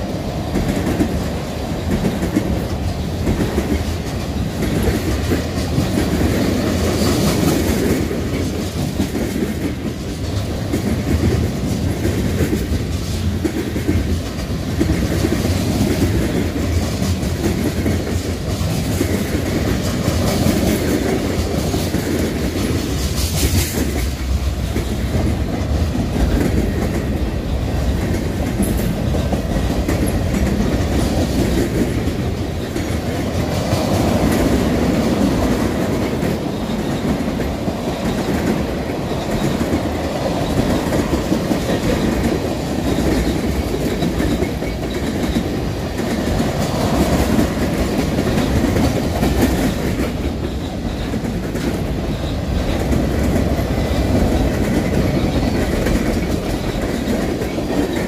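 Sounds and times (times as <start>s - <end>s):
freight train wheels rumbling on rails: 0.0s - 58.0s.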